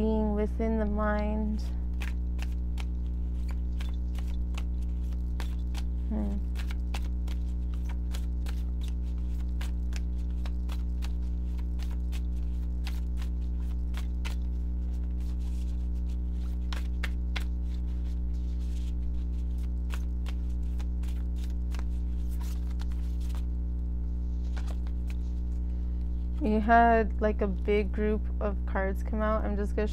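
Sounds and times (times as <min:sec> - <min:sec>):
steady low hum: 0:00.0 - 0:29.9
cards being shuffled: 0:01.9 - 0:23.5, 0:24.2 - 0:26.4.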